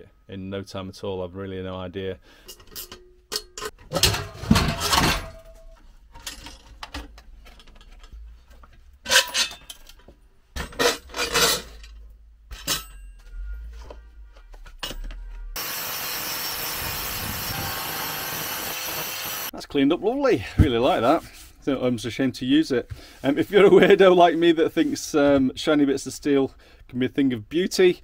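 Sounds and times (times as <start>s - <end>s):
steel pieces clanking: 2.4s - 8.1s, 9.0s - 10.0s, 10.6s - 13.4s
angle grinder grinding steel: 15.6s - 19.5s.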